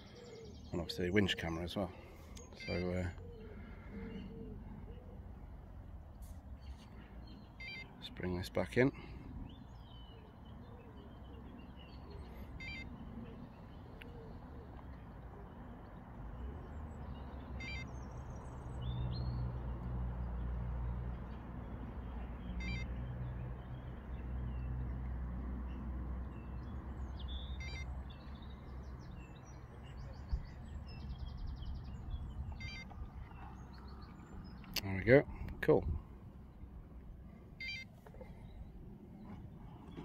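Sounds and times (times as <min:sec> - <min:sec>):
birds chirping: 0:00.0 - 0:40.0
faint short beep: 0:17.6 - 0:17.9, 0:22.6 - 0:22.9, 0:27.6 - 0:27.9, 0:32.6 - 0:32.9, 0:37.6 - 0:37.9.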